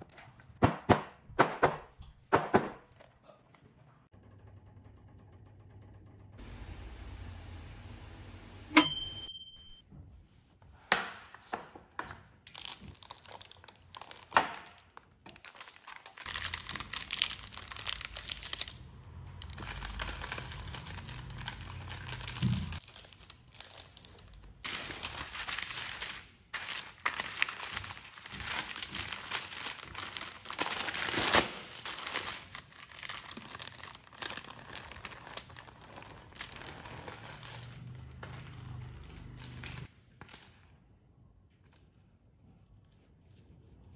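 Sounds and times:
bright ding: 8.7 - 9.8
baking paper crinkling and tearing: 12.3 - 40.7.

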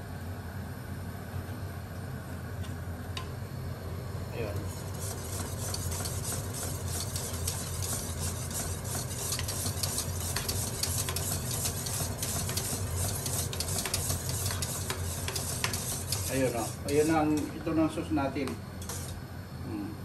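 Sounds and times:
steady low hum: 0.0 - 20.0
whisk clicking against pan: 4.9 - 17.5.

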